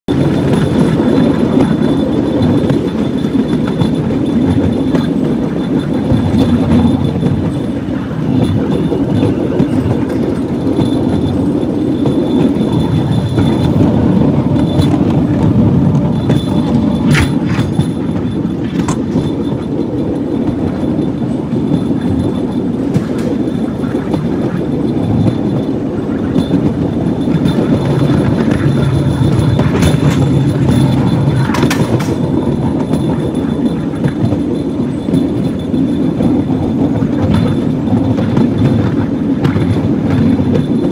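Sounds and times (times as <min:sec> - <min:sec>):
cart wheels rumbling on rails: 0:00.1 - 0:40.9
wheel squeals: 0:00.1 - 0:40.9.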